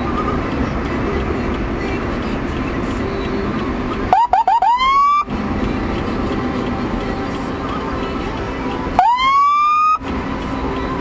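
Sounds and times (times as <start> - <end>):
road traffic noise: 0.0 - 11.0
motorcycle siren yelps: 4.1 - 5.3, 9.0 - 10.0.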